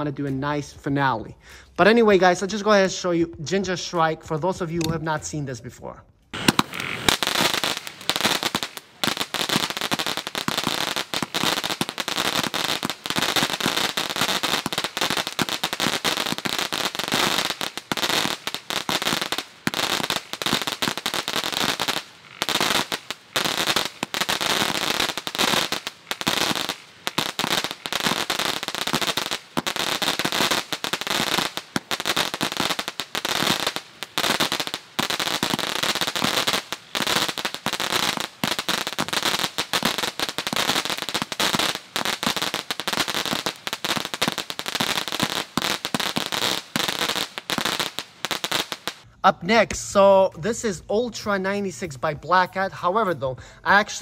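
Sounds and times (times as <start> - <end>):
firework pops and crackles: 6.3 - 49.1.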